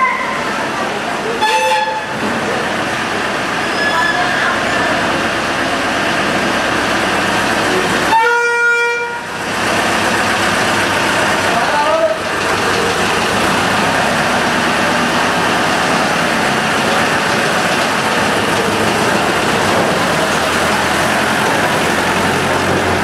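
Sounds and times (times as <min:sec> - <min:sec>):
tractor engine humming: 0:04.8 - 0:23.0.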